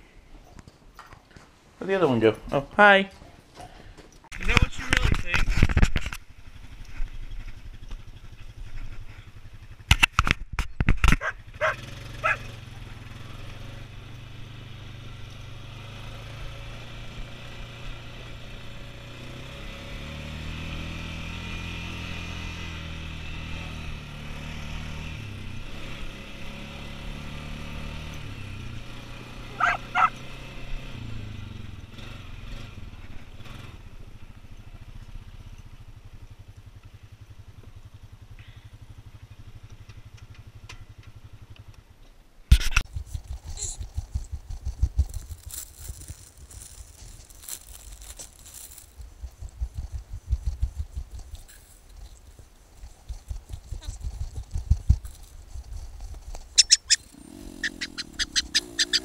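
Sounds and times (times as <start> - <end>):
quad engine running: 4.3 - 59.0
dog barking: 11.2 - 12.5, 29.5 - 30.2.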